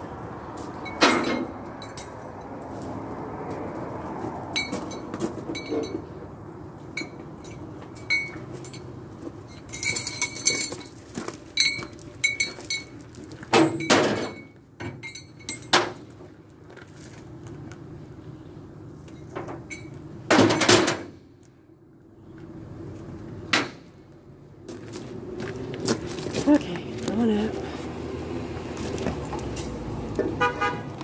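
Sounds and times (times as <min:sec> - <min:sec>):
metal clinking and clanking: 0:00.8 - 0:02.3, 0:04.5 - 0:06.2, 0:06.9 - 0:16.2, 0:19.1 - 0:21.2.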